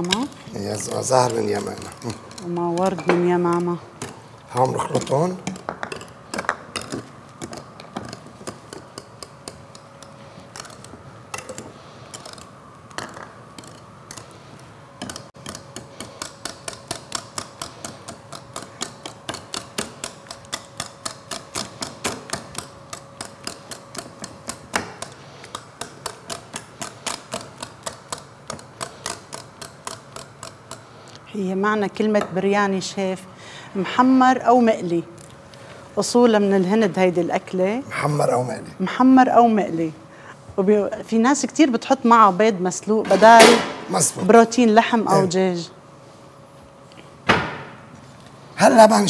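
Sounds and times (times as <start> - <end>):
whisk clicking against bowl: 15.0 - 30.9.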